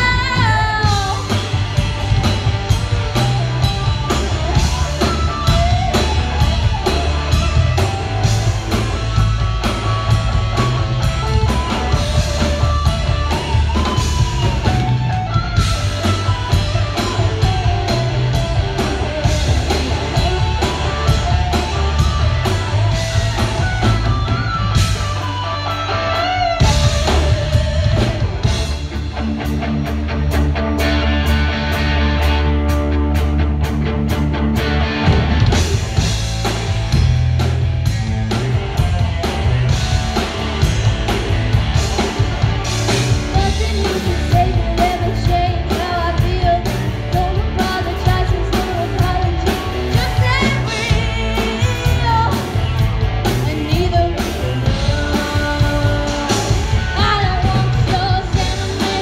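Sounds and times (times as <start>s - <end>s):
lead guitar bending: 0.0s - 59.0s
rock band playing: 0.0s - 59.0s.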